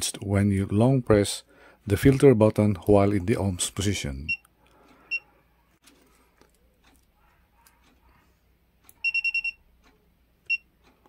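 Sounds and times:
multimeter short high beeps: 9.0 - 9.6.

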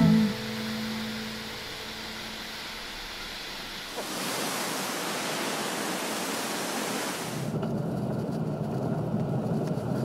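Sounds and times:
waterfall roaring: 0.0 - 7.6.

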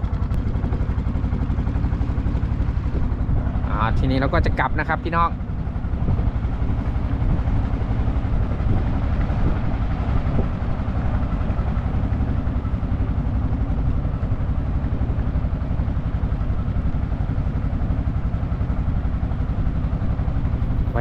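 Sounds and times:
motorboat engine chugging: 0.0 - 21.0
water and wind hiss: 2.1 - 21.0.

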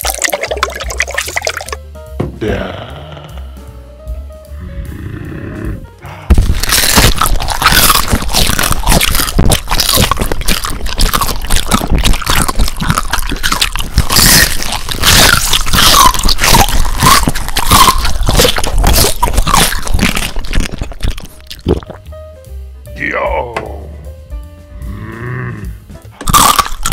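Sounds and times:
food crunching: 0.0 - 1.8, 6.3 - 22.0, 26.2 - 26.9
wet squishing of food: 0.0 - 1.8, 6.3 - 22.0.

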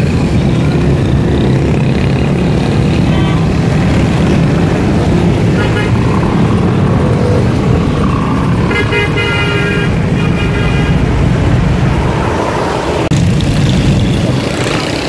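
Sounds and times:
heavy road traffic rumble: 0.0 - 15.0
vehicle horn tooting: 3.1 - 3.6, 5.5 - 6.0, 8.7 - 11.0.

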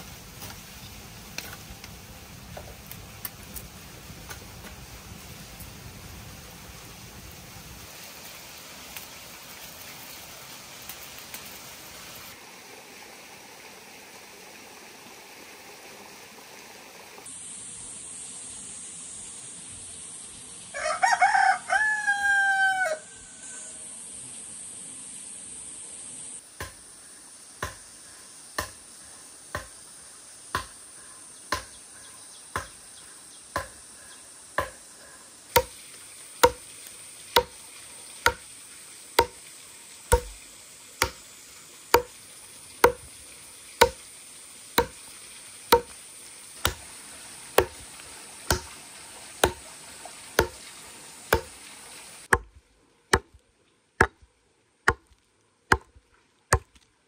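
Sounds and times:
axe chopping log: 26.6 - 26.8, 27.6 - 27.9, 28.6 - 28.8, 29.5 - 29.8, 30.5 - 30.8, 31.5 - 31.8, 32.6 - 32.8, 33.6 - 33.8, 34.6 - 34.8, 35.5 - 35.8, 36.4 - 36.7, 37.3 - 37.6, 38.2 - 38.5, 39.2 - 39.4, 40.1 - 40.4, 41.0 - 41.2, 41.9 - 42.2, 42.8 - 43.1, 43.8 - 44.0, 44.8 - 45.0, 45.7 - 46.0, 46.6 - 46.9, 47.5 - 47.9, 48.5 - 48.8, 49.4 - 49.7, 50.4 - 50.6, 51.3 - 51.6, 52.3 - 53.4, 54.0 - 56.8.

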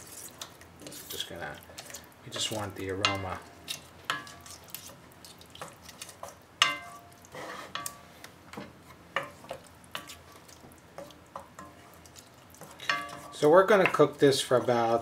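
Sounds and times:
wooden spoon stirring thick sauce: 0.0 - 15.0
spoon knocking against ringing pan: 6.6 - 7.0, 12.8 - 14.0.

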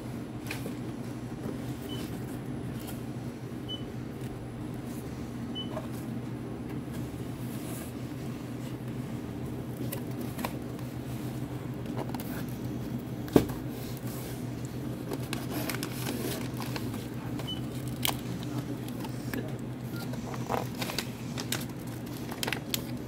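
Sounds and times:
steady low hum: 0.0 - 23.0
plastic bags crinkling: 14.6 - 23.0.

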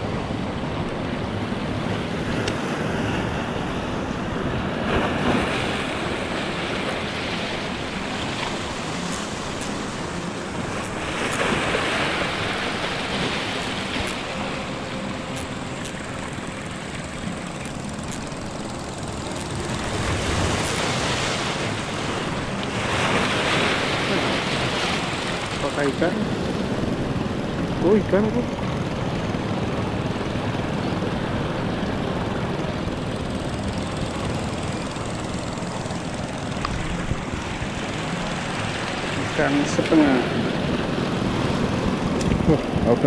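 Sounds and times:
sea waves washing on rocks: 4.8 - 26.3.

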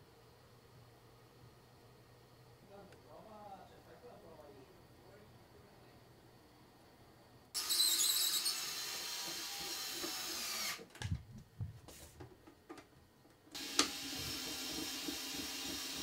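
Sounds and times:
small power tool running: 7.6 - 10.8, 13.6 - 16.0.

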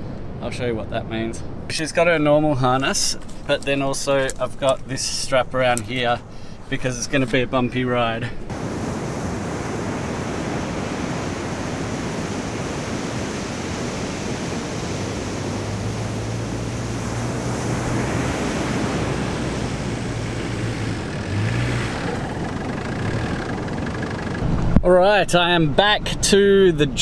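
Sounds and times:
surf rushing: 8.5 - 25.1
van engine droning: 14.8 - 27.0.

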